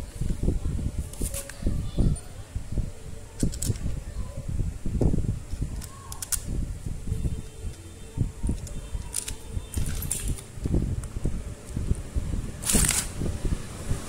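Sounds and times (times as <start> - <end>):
knocks and handling noise: 7.6 - 12.0.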